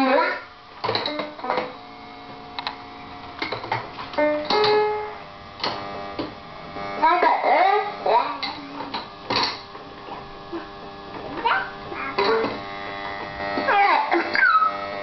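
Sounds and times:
toy keyboard notes: 4.2 - 5.2
child's voice: 7.0 - 9.0, 11.4 - 12.6, 13.7 - 14.6.

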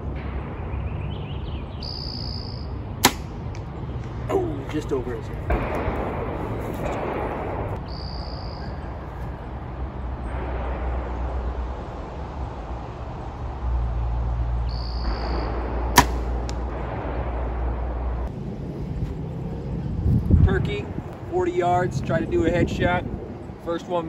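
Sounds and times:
arrow striking target: 3.0 - 3.7, 15.1 - 16.9
bow string snapping: 16.0 - 16.7.

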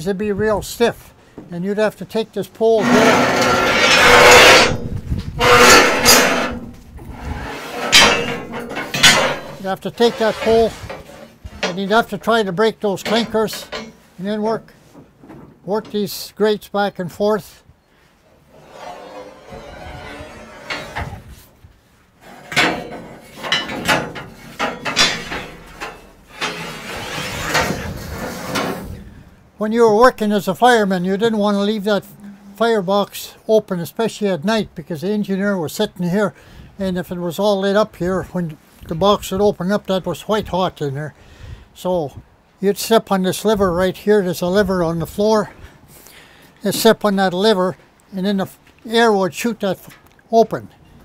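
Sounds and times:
metal pole scraping: 2.7 - 14.6, 18.3 - 21.6, 22.2 - 29.0
metal clanks and knocks: 2.8 - 14.2, 18.6 - 21.3, 22.2 - 28.9.

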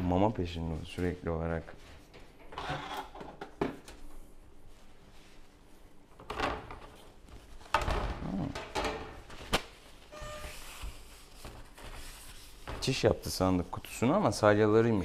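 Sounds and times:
rustling and shuffling: 0.0 - 2.5, 3.7 - 14.7
short electronic tone: 10.1 - 10.8.

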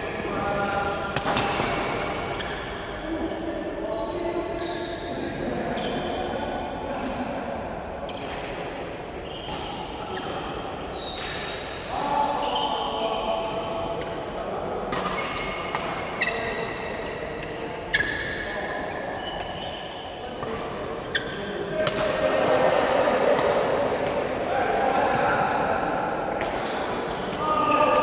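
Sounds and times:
players' voices: 0.0 - 28.0
shoes squeaking on court floor: 3.8 - 6.9, 8.0 - 8.6, 9.2 - 21.7.

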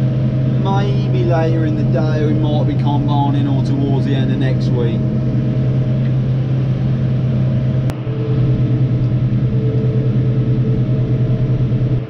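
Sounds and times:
tractor diesel engine droning: 0.0 - 12.0.

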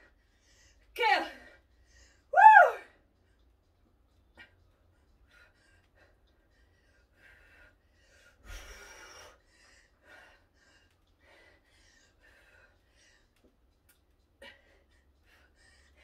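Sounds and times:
person breathing hard: 4.4 - 13.7, 14.4 - 16.0.

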